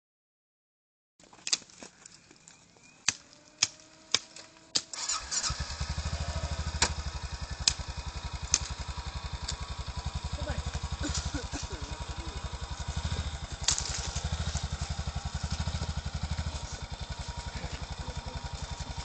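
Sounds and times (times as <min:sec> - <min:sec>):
sharp clicks: 0:03.0 - 0:05.2, 0:07.6 - 0:08.8
faint starter whir: 0:03.1 - 0:19.0
atv engine idling: 0:04.6 - 0:19.0.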